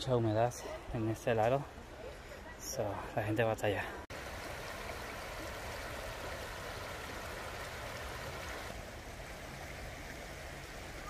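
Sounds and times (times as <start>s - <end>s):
creek water rippling over stones: 4.1s - 11.0s.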